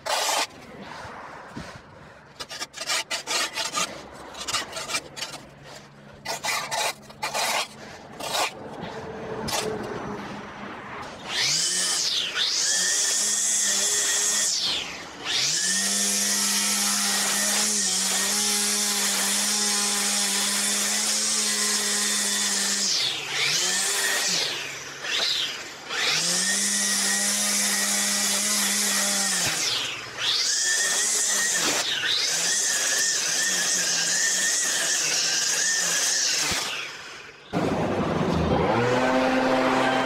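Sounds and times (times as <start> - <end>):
string trimmer motor whining: 11.2 - 40.0.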